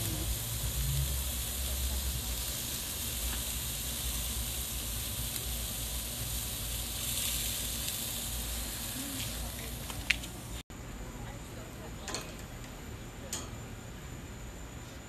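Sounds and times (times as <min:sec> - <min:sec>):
meat sizzling on a grill: 0:00.0 - 0:10.6.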